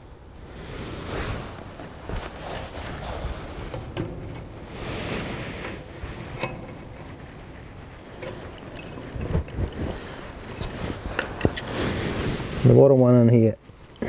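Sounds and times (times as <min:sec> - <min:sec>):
spanners clicking on metal clamp: 0:05.6 - 0:07.1, 0:08.2 - 0:11.7
pliers clinking on wire: 0:08.2 - 0:11.7.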